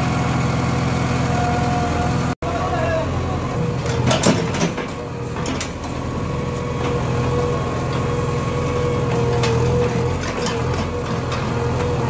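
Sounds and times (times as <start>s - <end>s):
diesel engine running: 0.0s - 12.0s
backhoe knocks: 3.8s - 8.2s, 8.8s - 12.0s.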